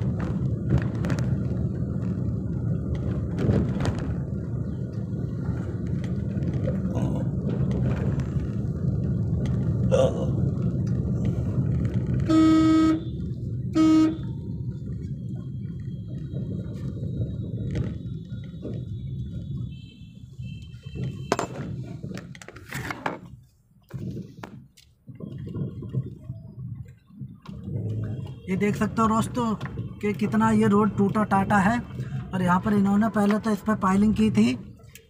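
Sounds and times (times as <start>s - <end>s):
car engine and road rumble: 0.0s - 35.0s
vehicle horn honking: 12.2s - 14.4s.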